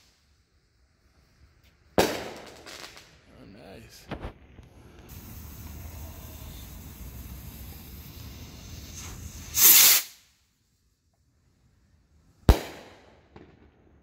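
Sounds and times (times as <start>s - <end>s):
firework bang: 2.0s - 3.1s, 4.0s - 10.2s, 12.5s - 14.0s
fuse hissing: 4.9s - 10.3s
rocket launch whoosh: 5.1s - 10.2s.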